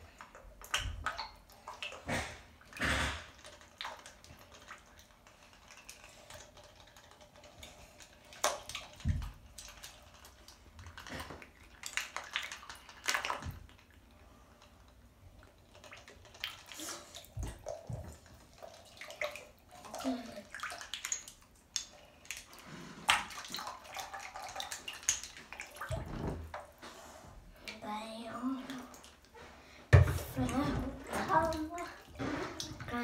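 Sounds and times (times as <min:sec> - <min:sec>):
bathwater sloshing and splashing: 0:00.0 - 0:33.0.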